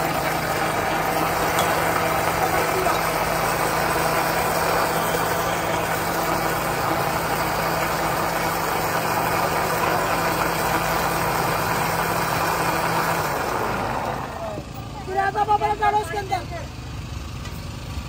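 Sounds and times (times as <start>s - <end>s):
machine running: 0.0s - 14.2s.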